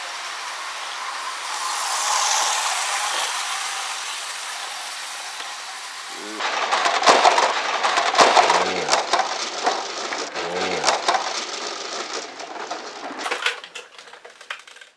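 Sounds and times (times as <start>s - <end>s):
plastic toy train crashing: 0.0s - 14.9s
scattered plastic clicks: 6.4s - 14.9s.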